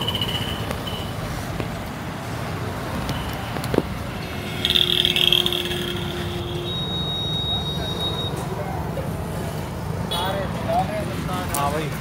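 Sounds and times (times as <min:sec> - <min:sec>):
vehicles running: 0:00.0 - 0:12.0
loud high-pitched tone: 0:04.4 - 0:08.4.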